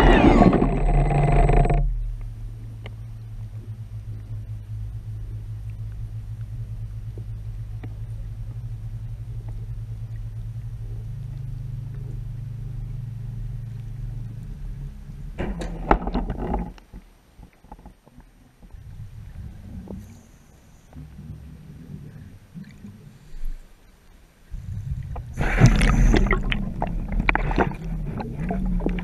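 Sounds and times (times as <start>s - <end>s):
rough bursts of noise: 0.0s - 2.0s, 24.5s - 29.0s
muffled low underwater hum: 0.0s - 29.0s.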